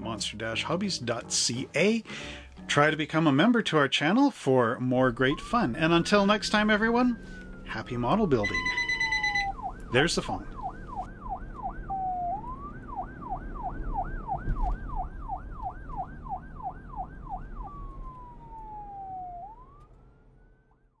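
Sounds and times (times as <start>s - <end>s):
electronic police siren: 5.2s - 7.0s, 8.4s - 21.0s.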